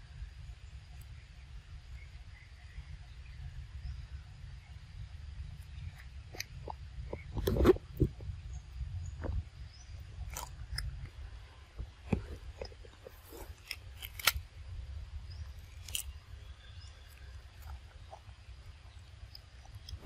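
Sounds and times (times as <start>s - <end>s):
steady low rumble: 0.0s - 20.0s
monkey chewing crisp greens: 10.2s - 11.2s, 12.0s - 14.4s, 15.6s - 20.0s.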